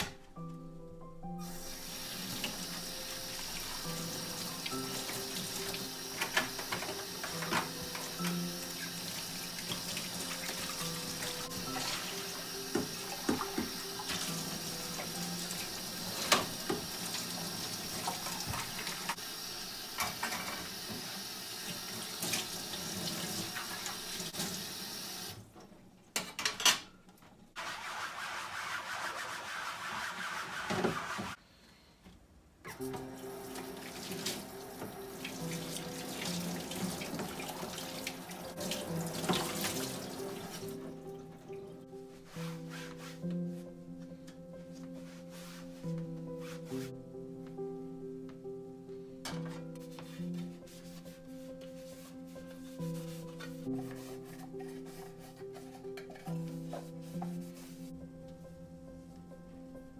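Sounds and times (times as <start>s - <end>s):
background music: 0.0s - 19.2s, 32.7s - 59.9s
tap water running into sink: 1.6s - 25.4s, 32.9s - 40.7s.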